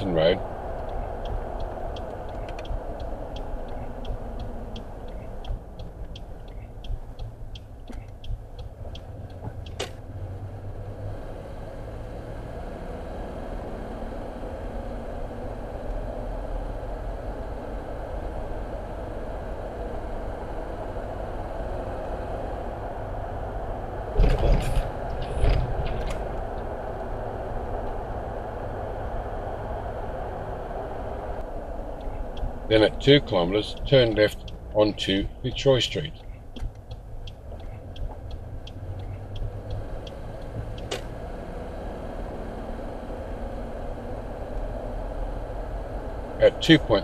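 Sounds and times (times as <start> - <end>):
car engine and tyre rumble: 0.0 - 47.0
indicator ticking: 0.8 - 9.7, 32.0 - 40.9.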